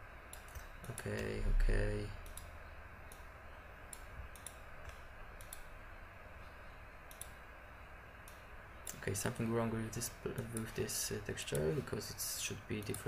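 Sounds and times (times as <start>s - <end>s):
microphone background hiss: 0.0s - 13.0s
computer mouse clicks: 0.3s - 1.3s, 2.2s - 2.5s, 3.9s - 5.7s, 7.0s - 7.4s, 8.2s - 9.0s.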